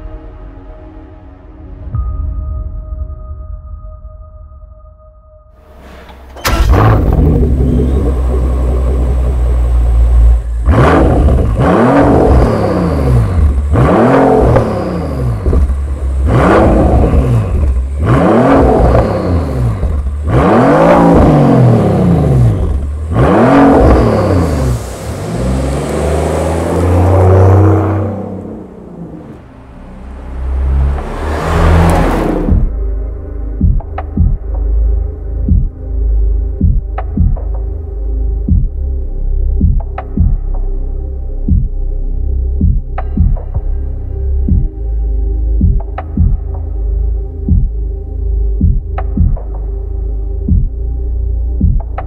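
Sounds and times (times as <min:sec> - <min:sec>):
engine revving: 0:05.7 - 0:32.8
car engine idling: 0:05.7 - 0:34.8
car driving past: 0:23.7 - 0:32.7.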